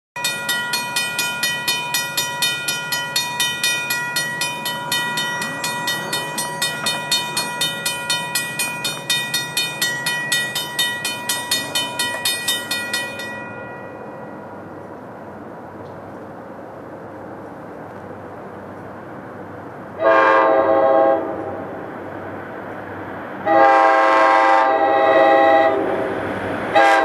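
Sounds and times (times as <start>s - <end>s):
railroad crossing bell ringing: 0.2s - 15.1s.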